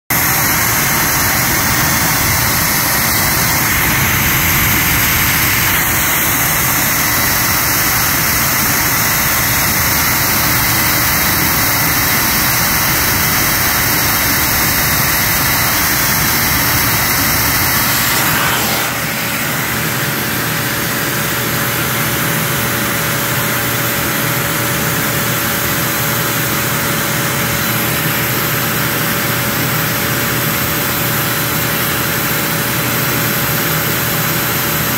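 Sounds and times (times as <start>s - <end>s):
blower rushing noise: 0.1s - 30.2s.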